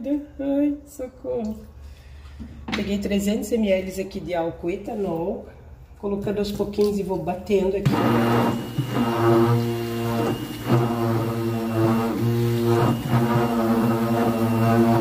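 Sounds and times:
immersion blender droning: 7.9 - 15.0.

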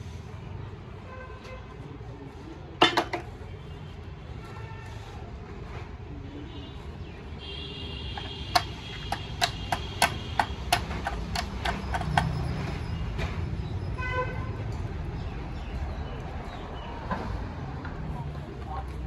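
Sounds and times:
sharp knocks: 2.8 - 3.3, 8.2 - 12.4.

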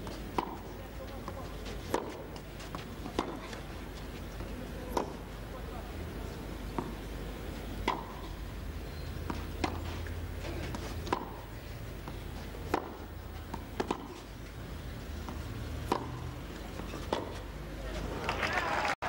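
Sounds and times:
racquet striking tennis ball: 0.0 - 3.6, 4.9 - 5.2, 6.7 - 7.1, 7.8 - 8.3, 9.2 - 14.2, 15.2 - 17.4.

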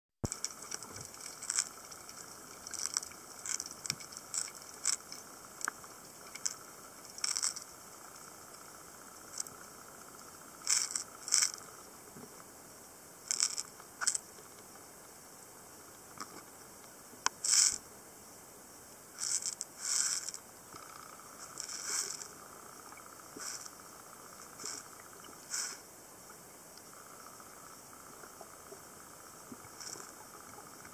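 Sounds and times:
faint steady underwater hiss: 0.2 - 30.9
short hissy scraping: 21.4 - 22.3, 23.4 - 23.8, 24.6 - 25.8.

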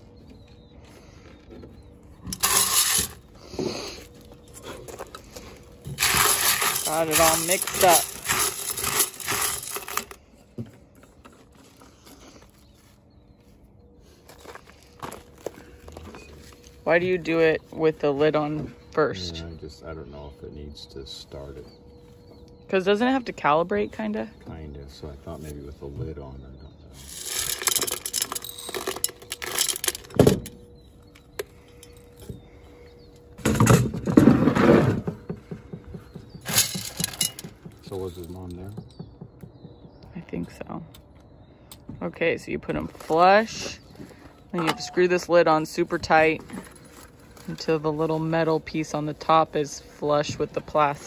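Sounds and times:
corn kernels rattling in metal can: 2.3 - 3.2, 5.9 - 10.2, 27.0 - 30.1
knock: 38.7 - 40.0.

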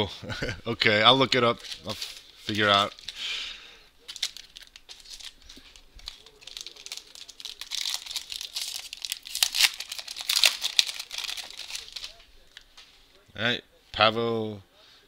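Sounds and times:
foil wrapper tearing and crinkling: 1.6 - 3.2, 4.0 - 12.7.

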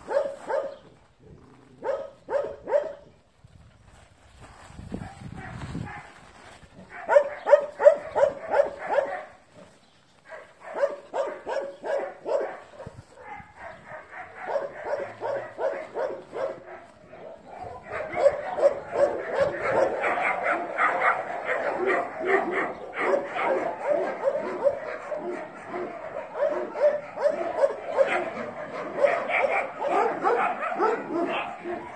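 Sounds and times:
dogs barking in high yaps: 0.0 - 1.0, 1.8 - 3.1, 5.0 - 31.9.

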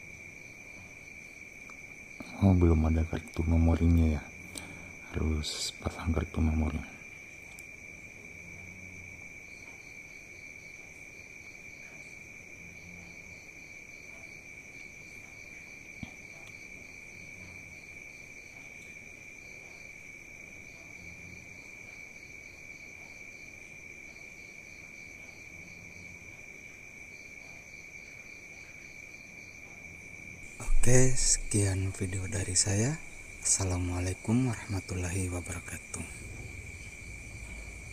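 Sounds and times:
crickets chirping: 0.0 - 37.9.

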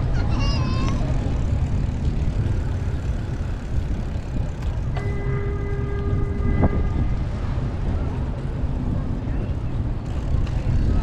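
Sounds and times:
wind rumble on microphone: 0.0 - 11.0
horn steady note: 5.0 - 7.3.

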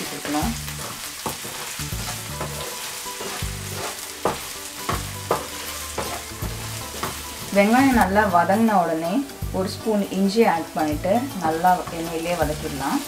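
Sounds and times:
onions sizzling in hot oil: 0.0 - 13.0
wooden spatula scraping pan: 0.2 - 7.8.

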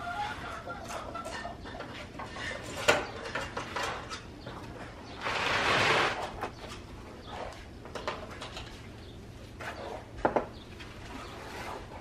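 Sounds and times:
trowel scraping mortar in metal basin: 5.2 - 6.4.

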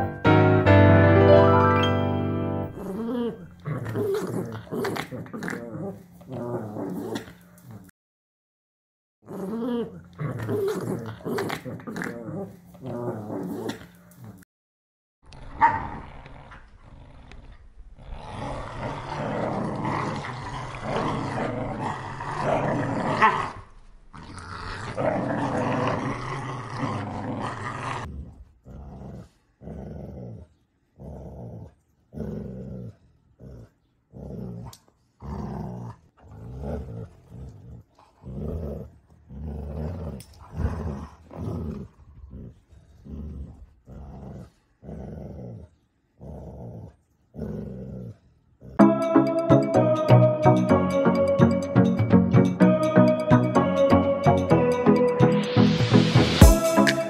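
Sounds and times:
dogs growling in play: 2.8 - 7.9, 9.2 - 14.5, 15.2 - 49.0.

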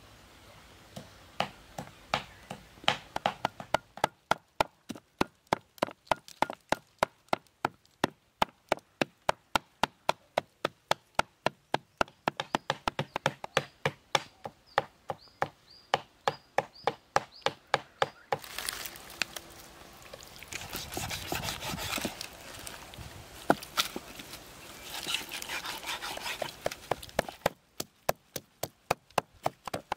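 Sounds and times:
knife chopping on wooden block: 20.8 - 22.1.

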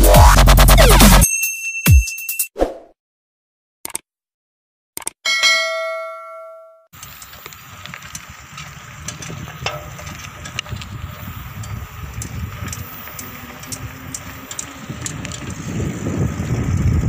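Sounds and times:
bell ding: 1.2 - 2.5, 5.3 - 6.9
bicycle clicks and rattles: 7.0 - 17.0
wind and road rumble: 7.0 - 17.0.

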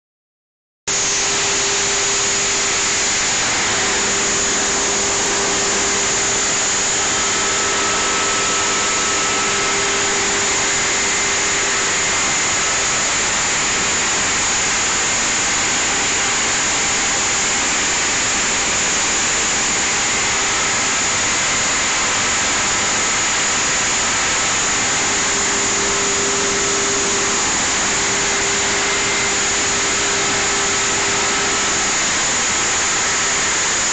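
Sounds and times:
feed processing machine running: 0.9 - 33.9.

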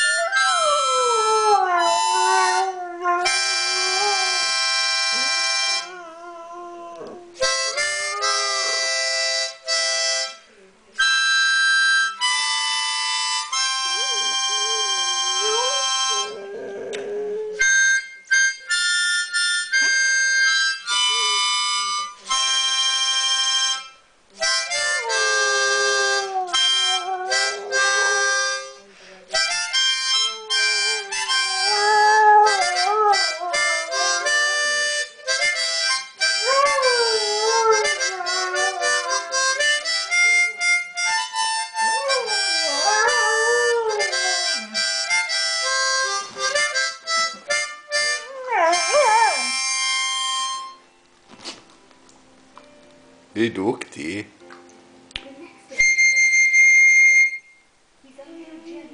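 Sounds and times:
harmonica chords: 0.0 - 6.8, 7.4 - 51.6, 55.7 - 57.8
dog howling: 0.2 - 4.6, 5.8 - 8.6, 25.0 - 28.6, 30.2 - 34.8, 36.4 - 39.7, 41.8 - 44.8, 48.2 - 49.6.

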